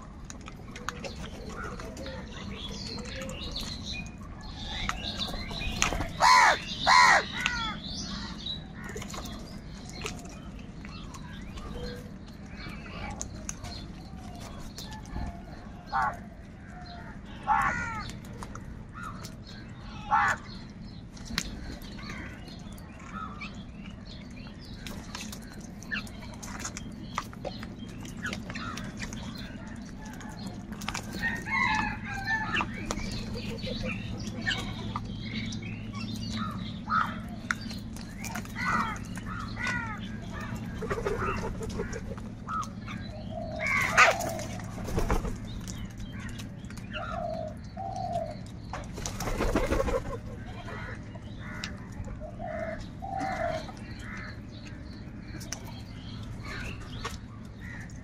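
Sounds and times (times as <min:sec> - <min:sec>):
crows cawing: 0:06.2 - 0:08.3, 0:17.0 - 0:18.2, 0:38.5 - 0:40.6, 0:57.6 - 0:58.0.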